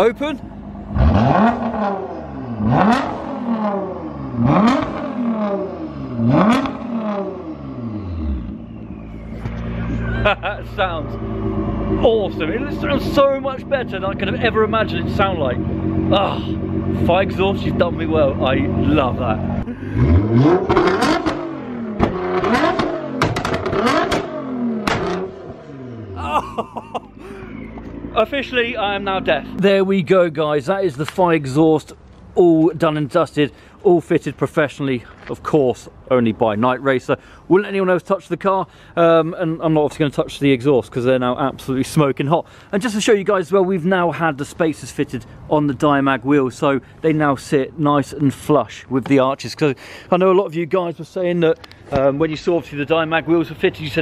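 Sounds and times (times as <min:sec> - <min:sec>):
car engine revving: 0:00.0 - 0:29.6
exhaust bangs and pops: 0:02.6 - 0:25.8.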